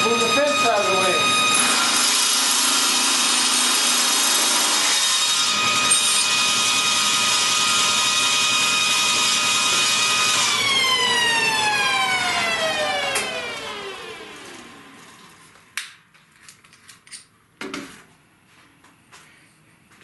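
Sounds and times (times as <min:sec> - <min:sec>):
table saw running: 0:00.0 - 0:15.4
cordless drill spinning: 0:05.2 - 0:15.3.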